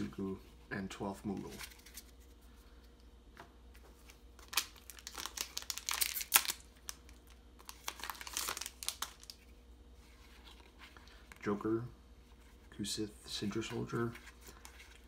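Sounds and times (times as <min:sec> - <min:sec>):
foil wrapper tearing and crinkling: 0:04.4 - 0:09.4.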